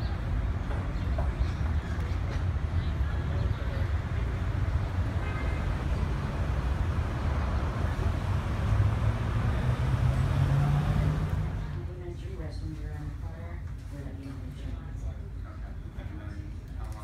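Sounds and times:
engine hum: 0:00.0 - 0:12.0
traffic engines rumbling: 0:00.0 - 0:17.0.

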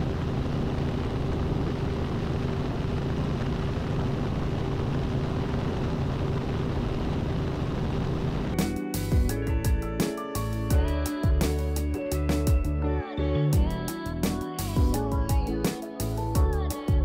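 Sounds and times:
helicopter engine and rotors droning: 0:00.0 - 0:10.6
steady hum: 0:00.0 - 0:11.8.

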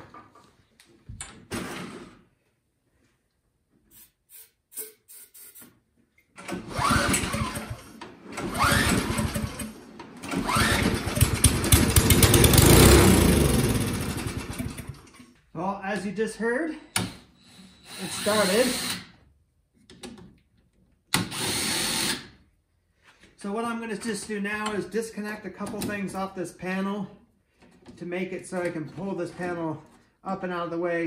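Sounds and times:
snowblower engine cranking and running: 0:06.4 - 0:15.4
starting fluid spray: 0:06.5 - 0:15.0.

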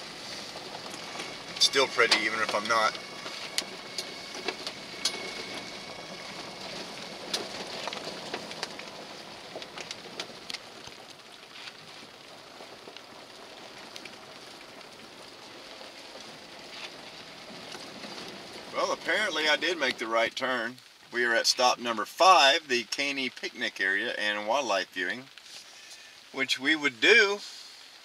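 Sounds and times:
rain hissing on a vehicle: 0:00.0 - 0:28.0
raindrop taps: 0:00.1 - 0:21.2.

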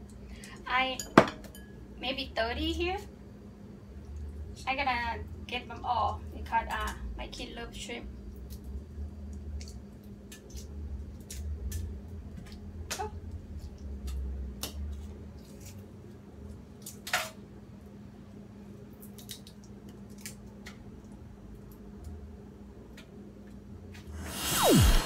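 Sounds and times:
shrimp shells being peeled: 0:19.0 - 0:21.1
steady low hum: 0:19.7 - 0:25.0
whoosh sweeping downward: 0:24.1 - 0:25.0.

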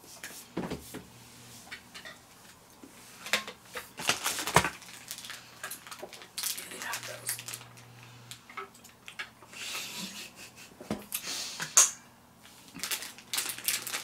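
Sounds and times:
plastic wrapper crinkling: 0:03.2 - 0:09.2, 0:12.5 - 0:14.0.

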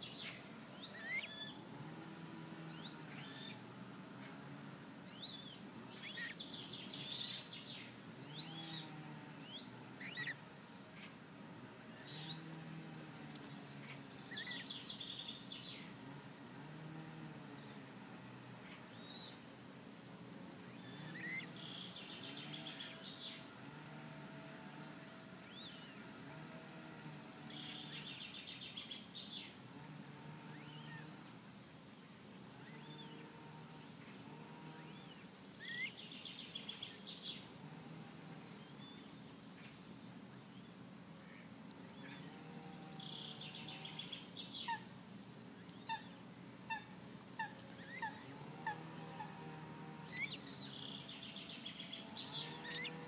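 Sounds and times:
bird trill: 0:00.0 - 0:01.6, 0:35.6 - 0:37.0, 0:50.1 - 0:53.0
low steady hum: 0:00.0 - 0:53.0
small birds chirping: 0:00.0 - 0:53.0.

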